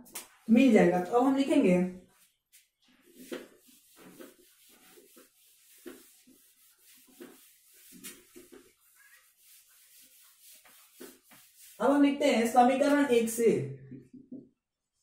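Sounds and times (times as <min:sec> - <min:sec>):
duster rubbing whiteboard: 0:02.6 - 0:12.2.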